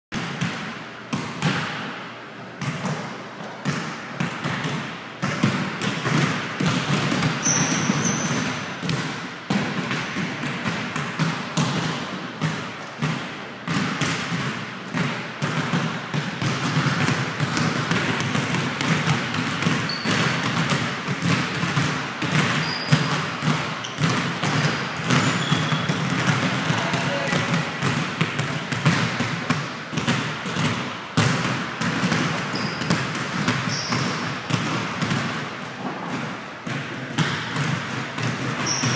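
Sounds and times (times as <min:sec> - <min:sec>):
basketballs dribbling on hard court: 0:00.2 - 0:38.9
short high squeaks: 0:07.4 - 0:08.4, 0:19.9 - 0:20.1.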